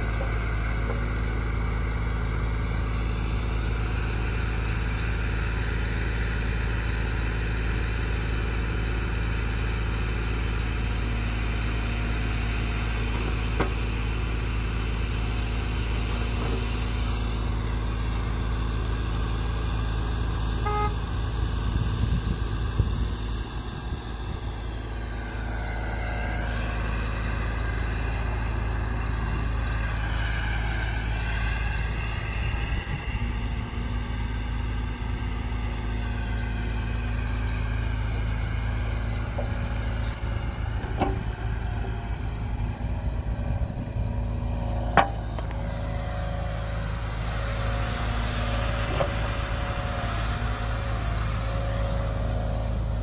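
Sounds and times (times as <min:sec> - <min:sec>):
diesel engine running: 0:00.0 - 0:53.0
sharp knocks: 0:44.9 - 0:45.4.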